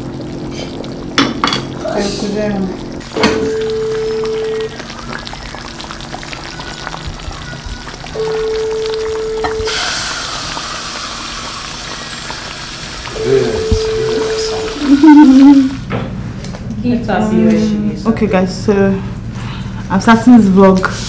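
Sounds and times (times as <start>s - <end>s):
soup sizzling in a pot: 0.0s - 15.8s, 20.8s - 21.0s.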